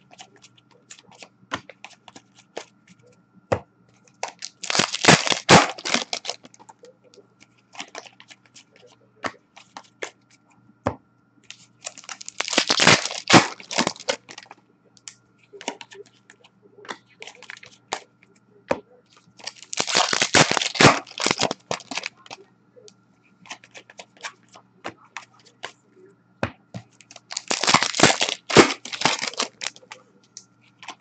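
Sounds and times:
foil wrapper crinkling: 0:04.2 - 0:06.5, 0:11.8 - 0:14.5, 0:19.4 - 0:22.4, 0:27.1 - 0:30.0.

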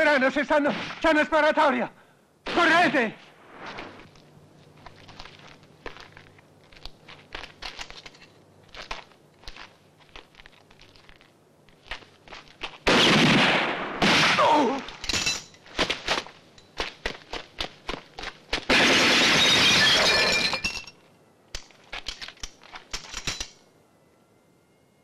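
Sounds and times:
loud gunshots: 0:12.8 - 0:14.7, 0:18.7 - 0:19.5.

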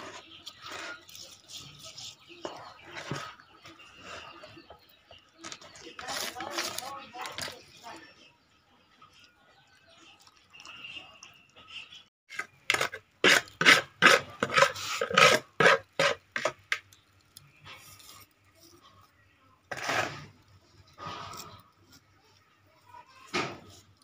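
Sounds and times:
rough rasping scrapes: 0:00.0 - 0:04.8, 0:05.4 - 0:07.5, 0:12.3 - 0:16.7, 0:19.7 - 0:22.1.

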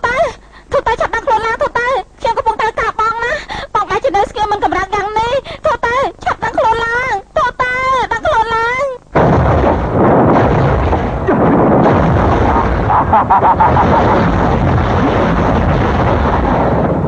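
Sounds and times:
explosion-like roar: 0:09.2 - 0:17.0.

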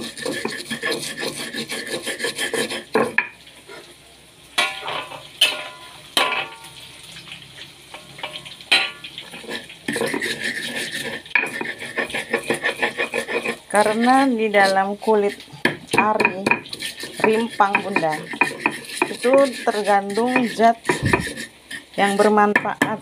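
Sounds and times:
stone pestle grinding: 0:00.0 - 0:03.2, 0:09.2 - 0:23.0.

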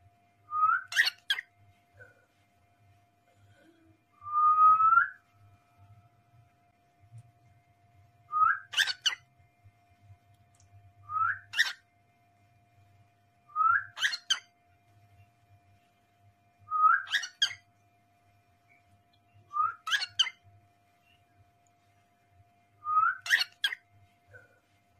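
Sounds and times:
cockatiel whistled call and chirps: 0:00.5 - 0:01.5, 0:08.3 - 0:09.2, 0:11.1 - 0:11.8, 0:13.6 - 0:14.5, 0:16.7 - 0:17.6, 0:19.5 - 0:20.4, 0:22.8 - 0:23.8.

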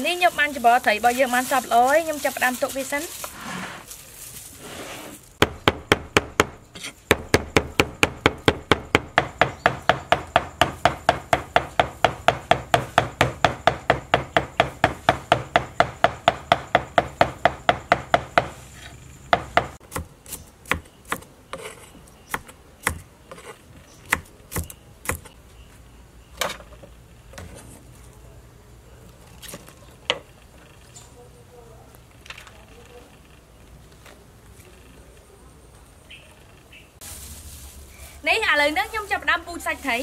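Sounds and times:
cleaver chopping on wooden board: 0:05.4 - 0:18.6, 0:19.3 - 0:21.3, 0:22.3 - 0:23.0.

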